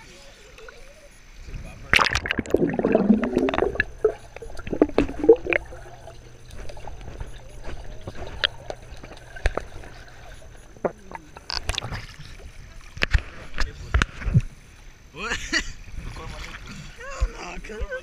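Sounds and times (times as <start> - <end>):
muffled underwater pool sound: 0.0 - 14.6
steady low hum: 0.8 - 17.0
water splash: 1.5 - 13.6
underwater clicks and knocks: 2.0 - 5.9, 6.5 - 12.2.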